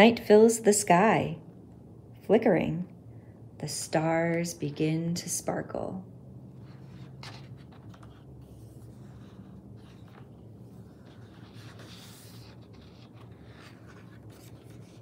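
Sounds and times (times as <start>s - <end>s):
faint low hum: 0.0s - 15.0s
paper pages rustling: 6.6s - 15.0s.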